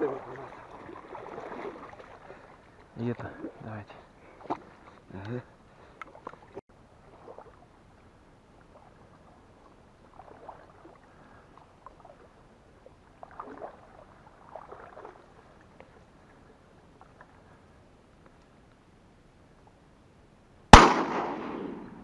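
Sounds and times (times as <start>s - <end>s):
footsteps splashing in water: 0.0s - 3.6s, 13.1s - 15.9s.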